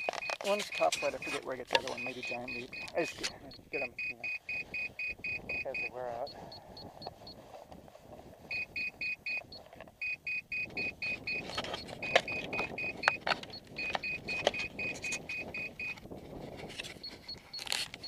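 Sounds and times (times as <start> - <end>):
sharp clicks and knocks: 11.4 - 15.3.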